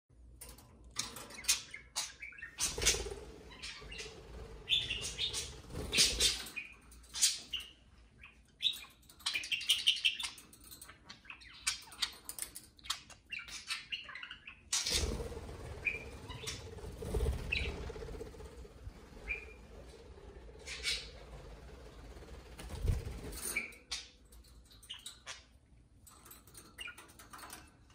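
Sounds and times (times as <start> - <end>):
budgerigars chirping: 1.4 - 15.1, 15.8 - 17.9, 19.2 - 19.6, 20.6 - 21.2
fluttering wing beats: 2.5 - 7.6, 14.8 - 25.0.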